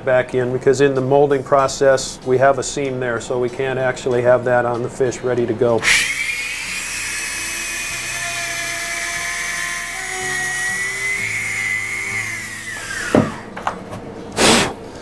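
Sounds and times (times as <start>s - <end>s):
rotary grinding tool whining: 5.8s - 13.6s.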